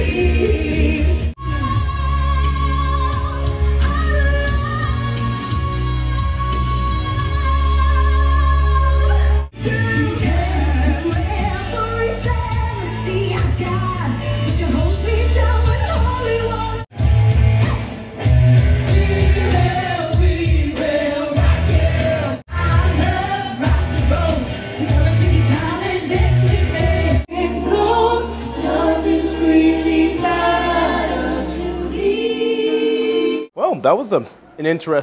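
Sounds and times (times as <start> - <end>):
rock and roll singing with band: 9.0 - 31.2.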